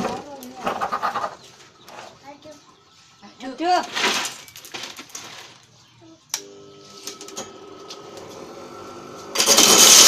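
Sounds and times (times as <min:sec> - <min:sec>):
corn kernels rattling in drum: 0:09.4 - 0:10.0.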